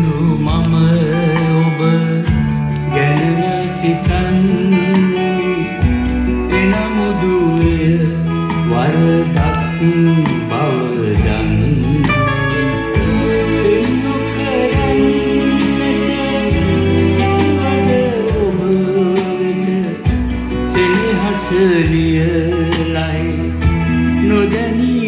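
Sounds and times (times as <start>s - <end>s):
song with guitar and singing: 0.0s - 25.0s.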